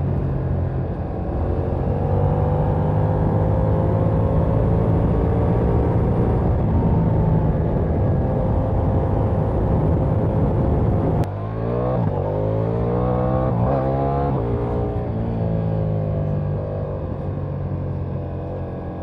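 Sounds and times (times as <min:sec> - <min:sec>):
motorcycle engine revving: 0:00.0 - 0:19.0
wind rush: 0:03.2 - 0:11.3.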